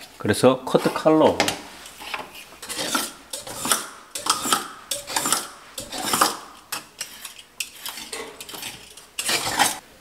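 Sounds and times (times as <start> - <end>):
knife blade scraping caulk: 1.8 - 9.8.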